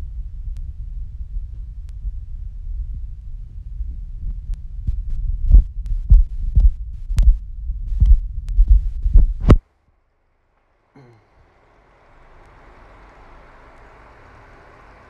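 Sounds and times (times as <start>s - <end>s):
phone microphone handling rumble: 0.2s - 9.6s.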